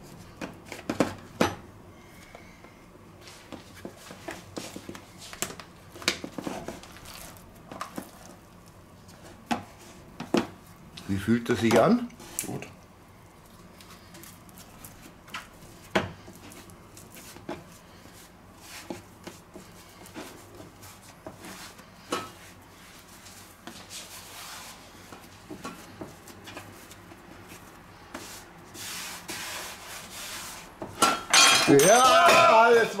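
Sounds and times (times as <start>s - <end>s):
hands patting and rubbing dough: 13.4s - 31.0s.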